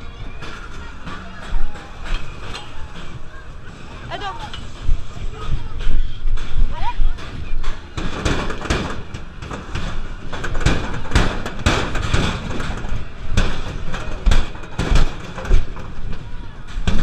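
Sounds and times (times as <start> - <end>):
noisy background: 0.0 - 17.0
metallic clanks and thumps: 0.1 - 17.0.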